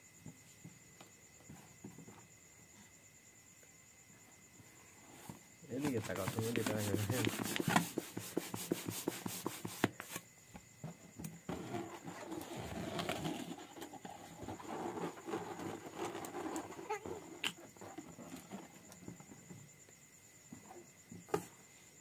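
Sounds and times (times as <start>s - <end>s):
hands squeaking on rubber balloon: 5.8s - 10.2s, 11.5s - 18.9s.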